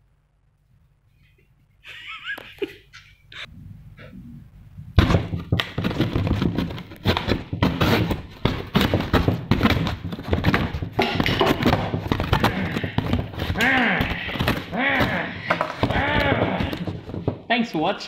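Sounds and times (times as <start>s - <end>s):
cardboard banged scraped and torn: 5.0s - 17.4s.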